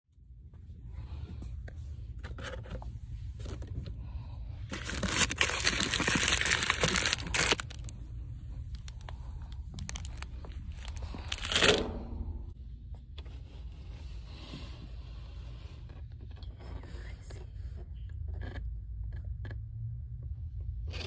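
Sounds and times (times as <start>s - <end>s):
steady low hum: 0.1s - 21.0s
material crinkling and rustling: 4.7s - 11.8s.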